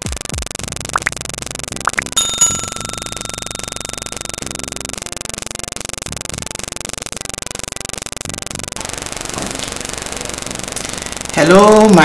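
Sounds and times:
pulsing electrical buzz: 0.0 - 12.0
notification bell ding: 2.2 - 4.9.

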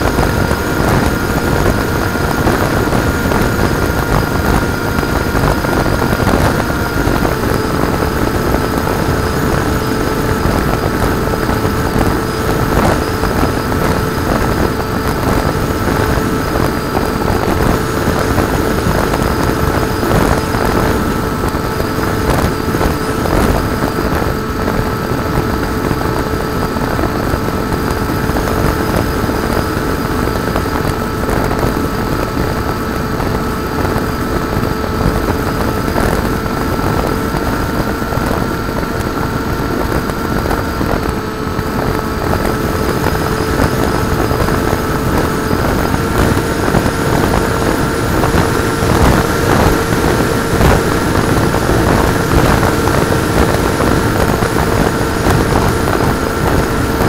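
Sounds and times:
electric motor and propeller whine: 0.0 - 57.0
wind rush on microphone: 0.0 - 57.0.

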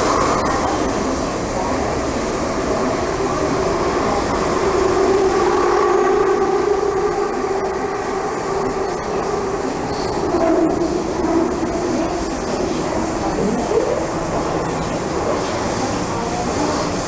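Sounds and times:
train wheels rumbling on rail: 0.0 - 17.0
train motor whine: 2.2 - 15.4.

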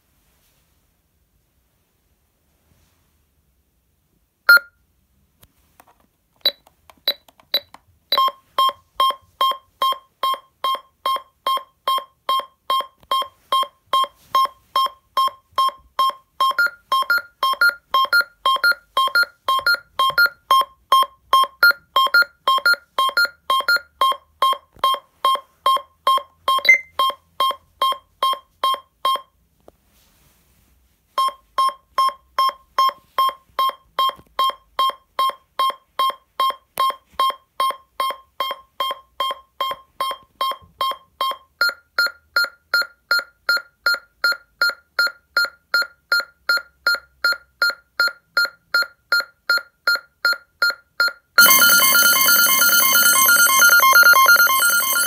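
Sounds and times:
rapid electronic alarm beeps: 26.6 - 27.2, 49.5 - 55.0
single high alarm tone: 51.4 - 55.0.

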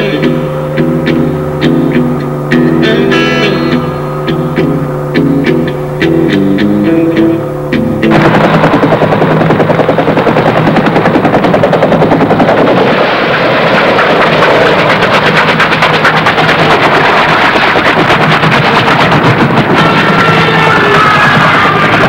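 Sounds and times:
guitar music: 0.0 - 12.5
helicopter rotor beating: 0.0 - 22.0.

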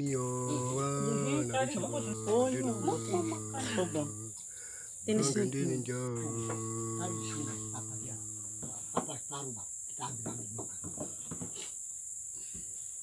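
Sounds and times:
man holding long low note: 0.0 - 4.4, 5.1 - 9.0
quiet indistinct talk: 0.0 - 4.4, 5.0 - 10.8
high-pitched insect drone: 0.0 - 11.6.

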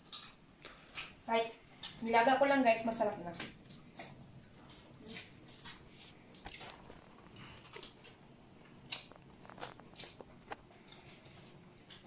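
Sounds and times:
chewing and lip smacks: 3.5 - 12.0.

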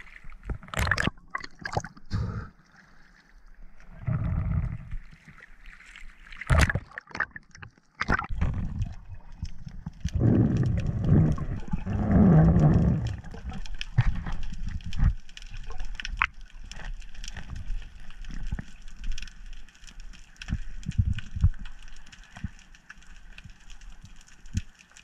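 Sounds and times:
clicks and crackles: 0.0 - 2.1, 3.8 - 25.0
underwater rushing gurgling water: 0.0 - 18.6
underwater hiss: 2.0 - 2.6.

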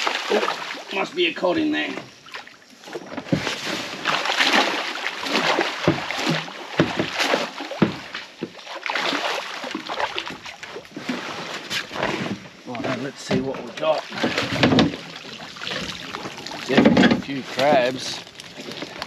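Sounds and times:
water splashing and sloshing: 0.0 - 19.0
pot knocking against boat: 5.8 - 8.6.

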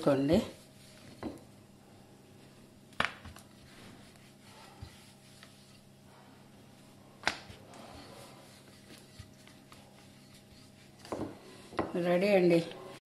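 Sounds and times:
faint steady hum: 0.0 - 13.0
sharp knocks on kitchen counter: 11.1 - 12.0.

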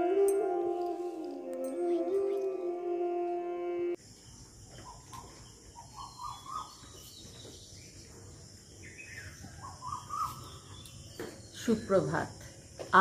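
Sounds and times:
music: 0.0 - 4.0
bird chirping: 4.0 - 12.8.

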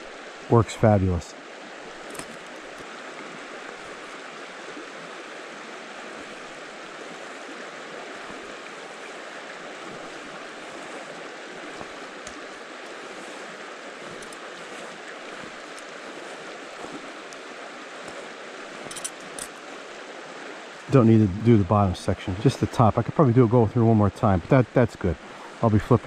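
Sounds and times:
mountain stream flowing: 0.0 - 26.0
faint small clicks: 14.1 - 14.4, 15.6 - 15.9.

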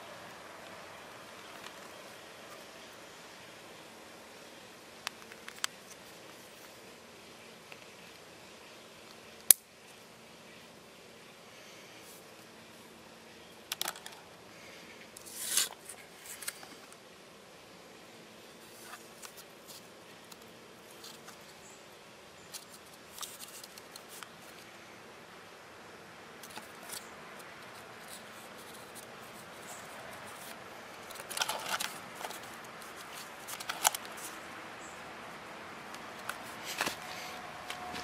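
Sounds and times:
cardboard rustling: 26.4 - 34.4, 36.1 - 38.0.

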